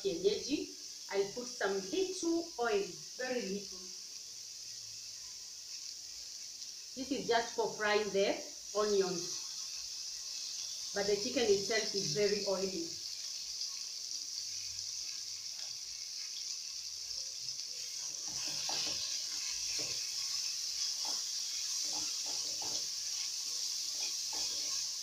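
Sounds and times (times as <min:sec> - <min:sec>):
onions sizzling in oil: 0:00.0 - 0:25.0
wooden spoon scraping pot: 0:18.1 - 0:23.0.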